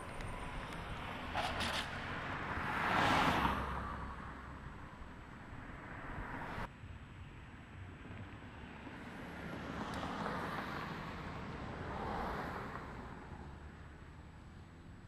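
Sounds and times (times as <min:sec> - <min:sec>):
car driving past: 0:00.4 - 0:05.0.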